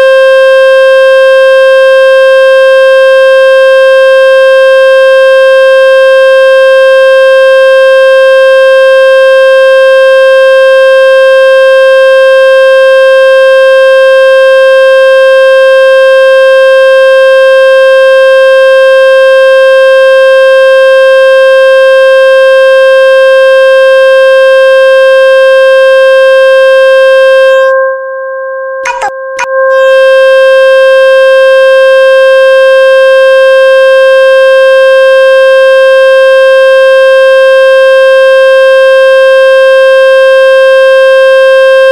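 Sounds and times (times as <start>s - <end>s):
clicks: 28.8s - 29.6s
buzzy electronic tone: 28.8s - 31.0s.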